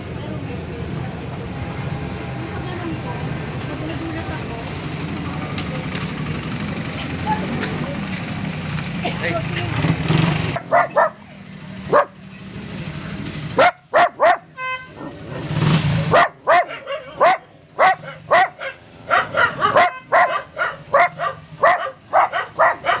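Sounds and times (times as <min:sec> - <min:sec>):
small dogs yapping: 0:10.5 - 0:11.2, 0:16.1 - 0:23.0.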